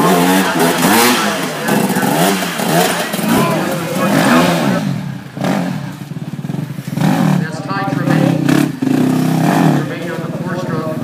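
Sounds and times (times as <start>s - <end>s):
dirt bike engine revving: 0.0s - 11.0s
spectators talking: 0.0s - 11.0s.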